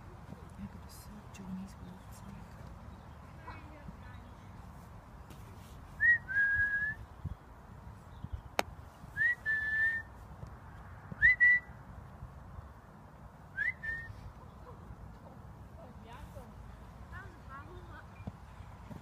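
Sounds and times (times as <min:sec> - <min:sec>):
person whistling: 0:06.0 - 0:07.0, 0:09.2 - 0:10.1, 0:11.2 - 0:11.7, 0:13.6 - 0:14.1.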